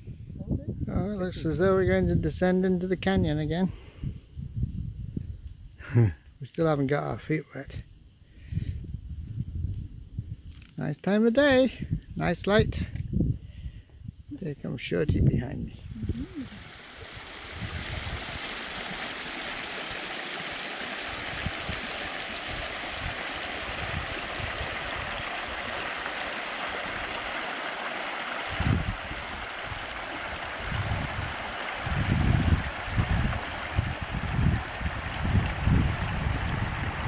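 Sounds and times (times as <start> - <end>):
stream rushing over rocks: 16.4 - 37.0.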